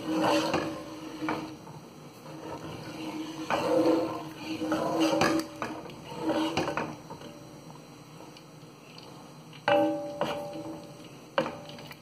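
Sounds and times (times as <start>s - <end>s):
spoon scraping metal pot: 0.0s - 1.5s, 2.3s - 7.0s.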